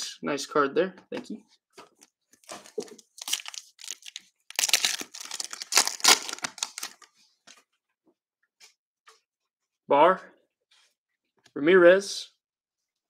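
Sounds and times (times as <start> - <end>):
plastic wrapper tearing: 2.5 - 7.1.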